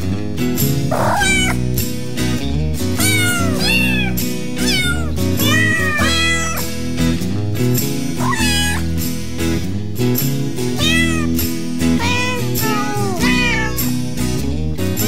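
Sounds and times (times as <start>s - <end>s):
background music with low bass: 0.0s - 15.0s
kittens meowing: 0.9s - 1.7s, 3.0s - 6.7s, 8.2s - 8.9s, 10.8s - 11.4s, 12.0s - 14.0s.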